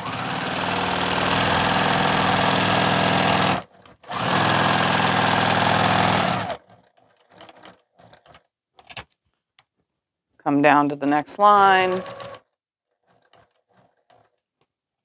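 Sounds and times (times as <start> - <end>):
sewing machine stitching: 0.0 - 8.5, 11.4 - 14.5.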